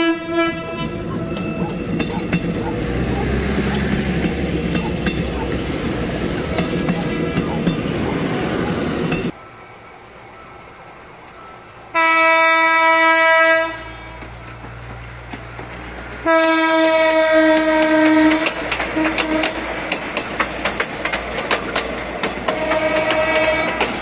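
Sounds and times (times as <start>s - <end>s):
train horn blasts: 0.0s - 5.4s, 11.9s - 14.4s, 16.2s - 19.7s, 22.5s - 24.0s
wheels clacking over rail joints: 0.6s - 9.4s, 14.1s - 16.3s, 16.9s - 24.0s
diesel engine rumble: 0.8s - 9.3s.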